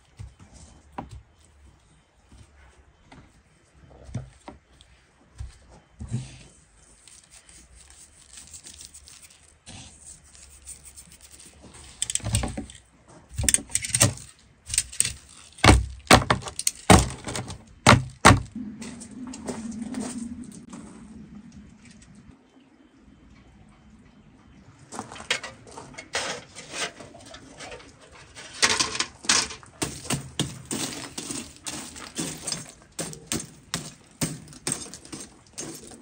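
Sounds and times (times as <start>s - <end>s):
steady low hum: 9.9s - 25.7s
sharp knocks and cracks: 12.0s - 18.6s, 28.8s - 35.8s.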